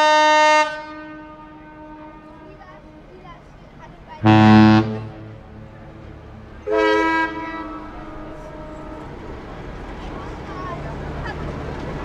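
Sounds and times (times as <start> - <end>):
ship's horn blast: 0.0 - 3.4, 4.0 - 9.6
steady low rumble: 4.2 - 9.9.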